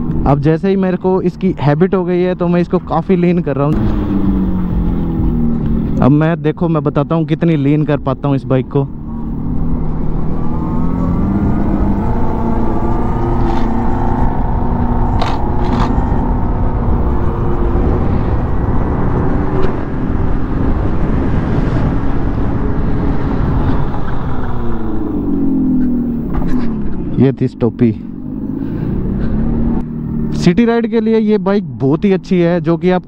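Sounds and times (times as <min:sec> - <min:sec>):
simulated motorcycle engine sound: 0:00.0 - 0:33.0
wind noise on microphone: 0:09.5 - 0:26.6.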